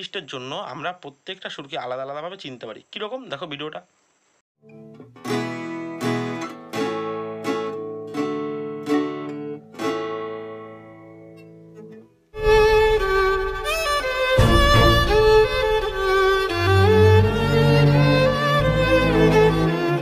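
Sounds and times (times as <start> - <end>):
fingerpicked acoustic guitar chords: 4.6 - 19.2
bowed violin melody: 12.4 - 20.0
deep string backing: 12.4 - 20.0.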